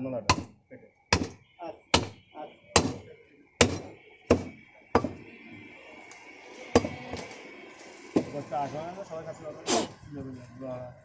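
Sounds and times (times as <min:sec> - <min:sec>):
cleaver chopping meat on wood: 0:00.3 - 0:02.2, 0:02.8 - 0:03.0, 0:03.6 - 0:05.2, 0:06.8 - 0:07.0.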